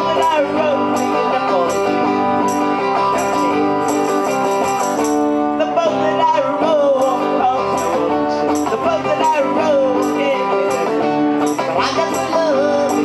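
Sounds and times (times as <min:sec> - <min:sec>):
electric guitar chords: 0:00.0 - 0:13.0
high jingling percussion hits: 0:00.9 - 0:05.4.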